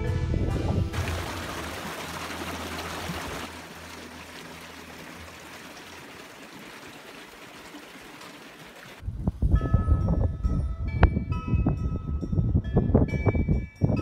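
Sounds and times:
stream running over stones: 0.9 - 9.0.

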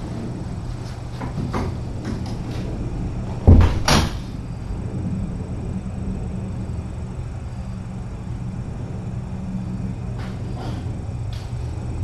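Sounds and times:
low electrical hum: 0.0 - 12.0
loud thump: 3.5 - 4.3.

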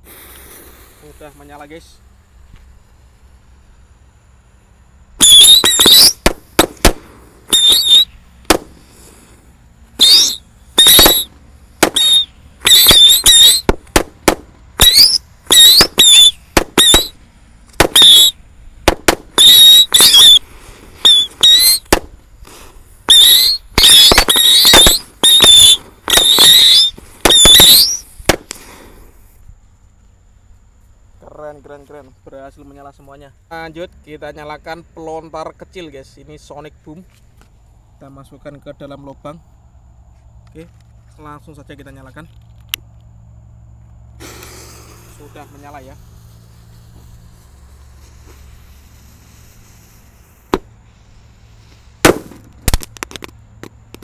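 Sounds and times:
firecracker cracks: 0.0 - 1.1, 5.2 - 9.4, 10.0 - 29.1, 44.2 - 50.8, 51.7 - 54.0
firecrackers screeching: 0.0 - 1.9, 5.2 - 29.3, 44.2 - 53.3.

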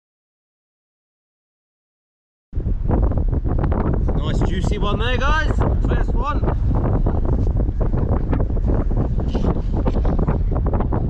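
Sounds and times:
wind buffeting microphone: 2.6 - 11.0.

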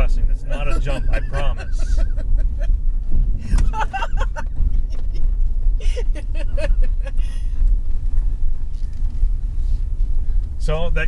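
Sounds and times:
truck engine rumble from inside cab: 0.0 - 11.0
burst of laughter: 3.5 - 5.0, 5.8 - 7.2.

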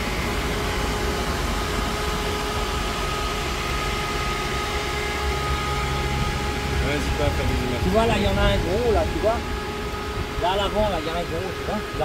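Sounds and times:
car engine idling: 0.0 - 12.0
steady whining tones: 0.0 - 12.0.

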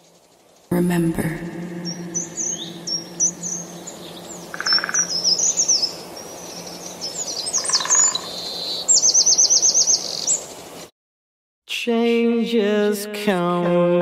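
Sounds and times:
birds chirping: 0.0 - 10.9
buzzy bird calls: 1.8 - 10.7.

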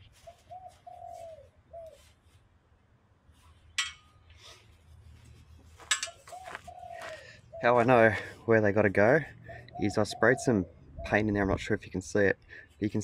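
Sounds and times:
dove cooing: 0.2 - 2.1, 6.2 - 8.4, 9.3 - 11.6
small metal parts clinking: 5.8 - 6.3.

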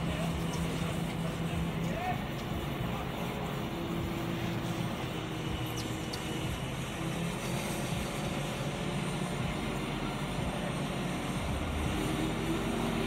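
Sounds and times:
crane engine running: 0.0 - 13.0.

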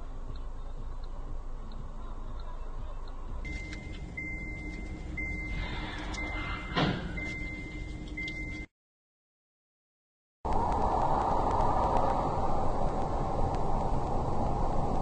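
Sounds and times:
road noise inside car: 0.0 - 8.7, 10.5 - 15.0
high beeps: 3.4 - 8.7.

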